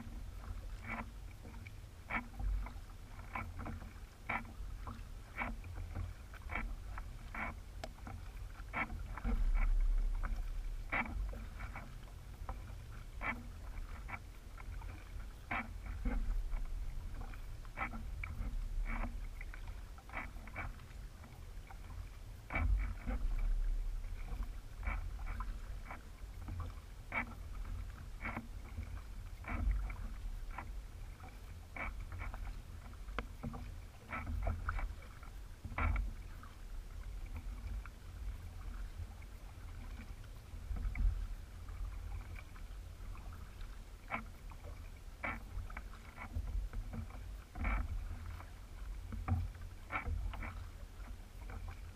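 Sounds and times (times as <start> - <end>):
light clicks and knocks: 0.4 - 36.5
steady low rumble: 4.6 - 51.9.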